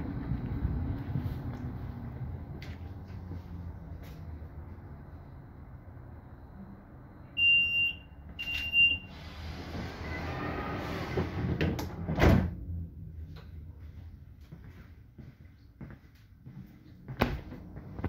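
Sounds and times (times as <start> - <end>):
train humming: 0.0 - 5.2
high warning beeps: 4.9 - 9.1
sliding door hissing: 9.0 - 12.4.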